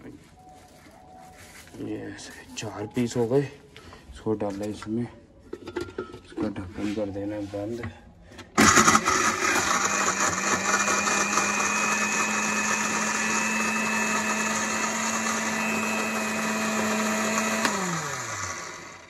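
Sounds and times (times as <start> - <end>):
electric grinder grinding: 8.6 - 19.0
motor winding down: 8.6 - 19.0.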